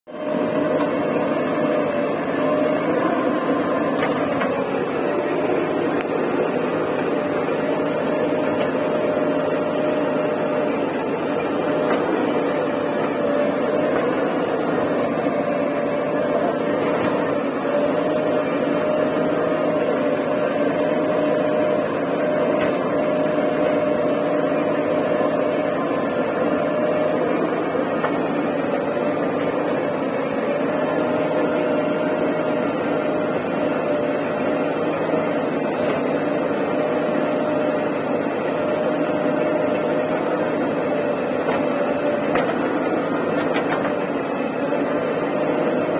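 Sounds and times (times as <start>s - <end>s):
diesel engine running: 0.1s - 45.9s.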